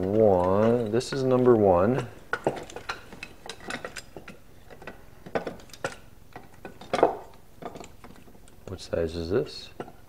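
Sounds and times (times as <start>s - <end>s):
metal traps and chains rattling: 0.0s - 9.7s.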